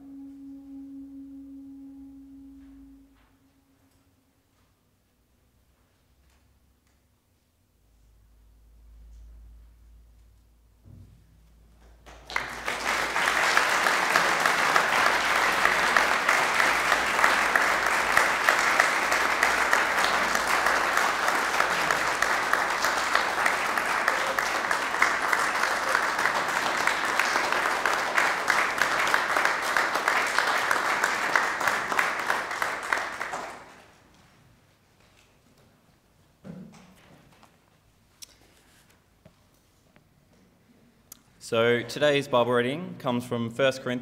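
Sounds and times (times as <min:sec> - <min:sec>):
audience applauding: 0:12.0 - 0:34.0.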